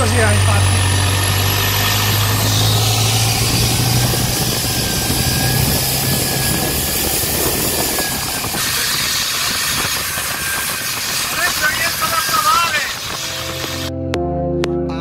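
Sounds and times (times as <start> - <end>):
motorboat engine drone: 0.0 - 14.6.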